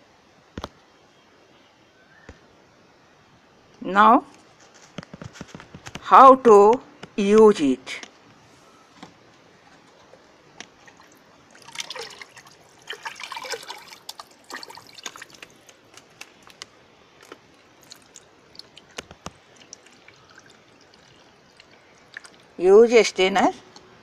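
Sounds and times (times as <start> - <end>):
liquid splashing and trickling: 10.8 - 16.6, 17.2 - 22.6
drips and small splashes: 10.8 - 22.6.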